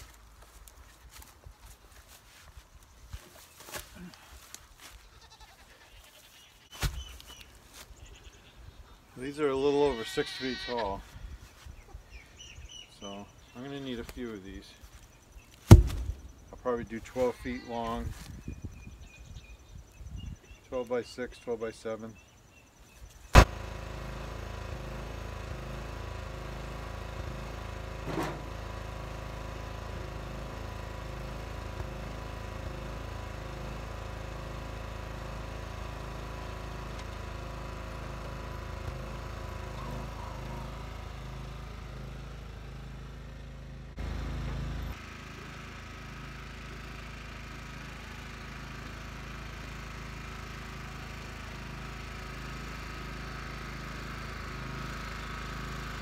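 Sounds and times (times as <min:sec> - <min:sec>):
lawn tractor engine running: 0:12.1 - 0:17.4, 0:23.4 - 0:56.0.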